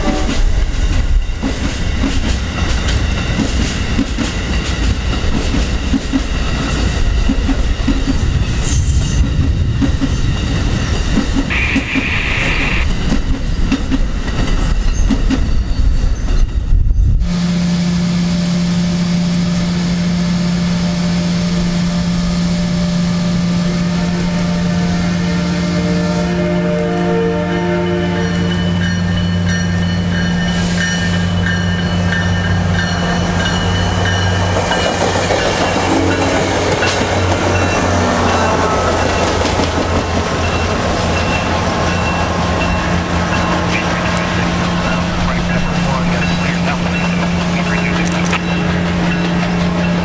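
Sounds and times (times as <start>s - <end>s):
train cars rolling past: 0.0s - 50.0s
high squeal: 10.2s - 13.0s
steady low drone: 16.7s - 50.0s
wheels clacking over rail joints: 30.9s - 45.3s.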